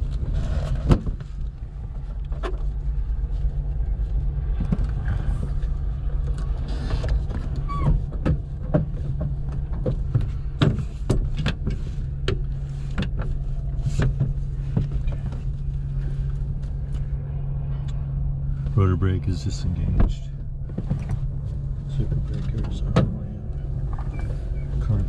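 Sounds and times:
low intercom hum: 15.0s - 25.0s.

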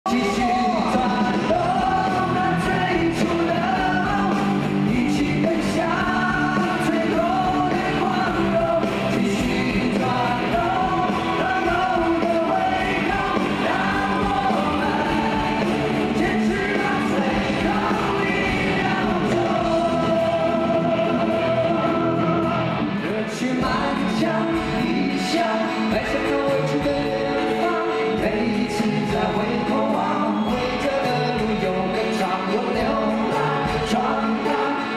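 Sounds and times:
acoustic and electric guitars: 0.1s - 34.9s
male voices singing: 0.1s - 34.9s
rock band playing: 0.1s - 34.9s.

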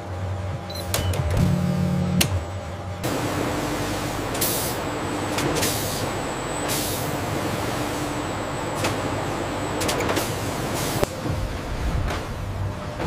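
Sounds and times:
factory machinery hum: 0.0s - 13.0s
air hiss bursts: 3.8s - 4.9s.

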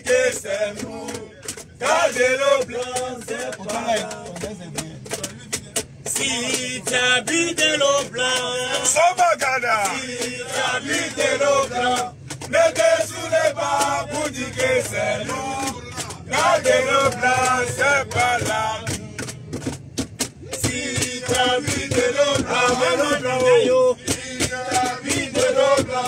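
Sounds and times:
men chanting and singing: 0.0s - 26.0s.

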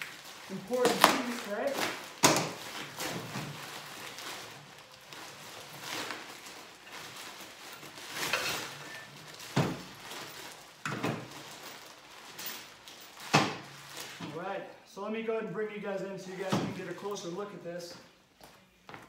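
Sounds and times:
bubble wrap crinkling: 0.0s - 14.2s.

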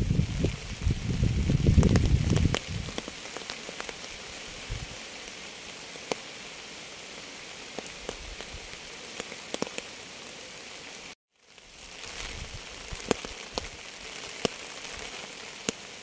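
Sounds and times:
steady rain falling: 0.0s - 16.0s
raindrops ticking: 0.3s - 4.2s, 5.2s - 6.3s, 7.5s - 10.0s, 11.4s - 16.0s.

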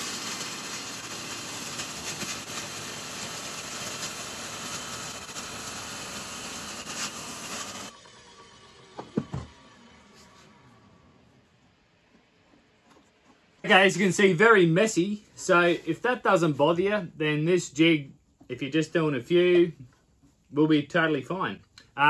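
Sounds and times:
circular saw cutting wood: 0.0s - 11.0s.

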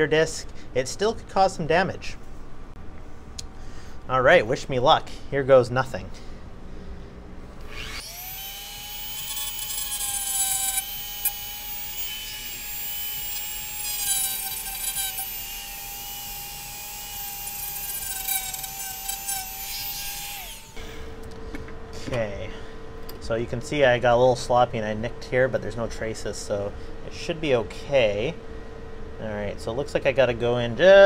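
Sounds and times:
rotary tool whine cutting plastic: 7.6s - 21.0s.

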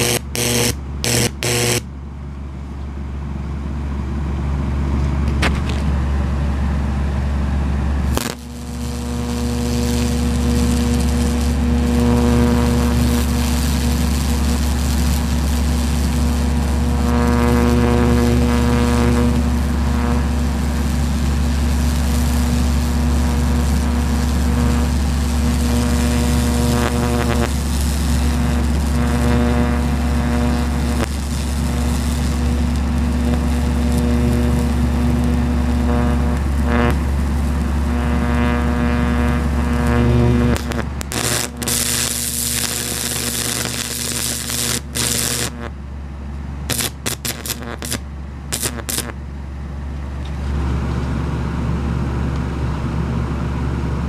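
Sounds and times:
sharp electrical snap: 0.0s - 1.8s, 8.1s - 45.7s, 46.7s - 49.2s
electric arc buzzing: 0.0s - 1.9s, 8.0s - 45.8s, 46.7s - 49.2s.

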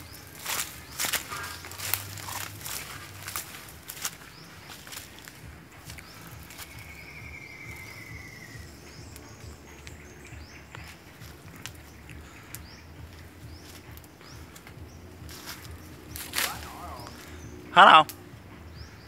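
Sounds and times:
clicks and rustles of branches: 0.0s - 18.6s
high rapid insect trill: 5.9s - 10.2s.

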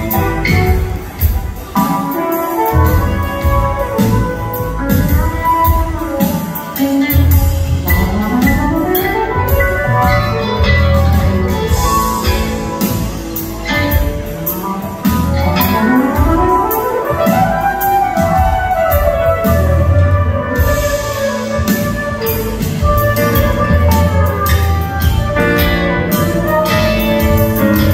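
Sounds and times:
bass: 0.0s - 27.9s
drums: 0.0s - 27.9s
keyboards: 0.0s - 27.9s
sliding notes rising in pitch: 19.2s - 27.9s.

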